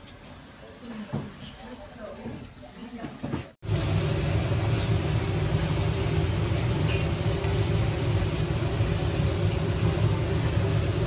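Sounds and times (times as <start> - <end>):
machine humming: 3.6 - 11.0.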